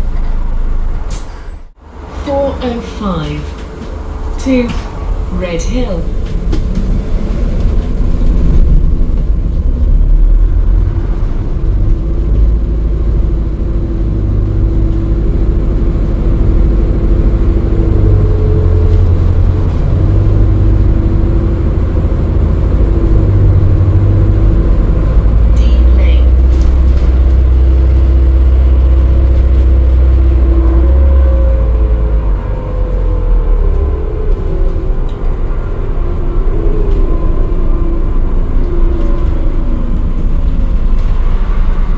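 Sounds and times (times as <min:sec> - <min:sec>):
bus road and drivetrain rumble: 0:00.0 - 0:41.9.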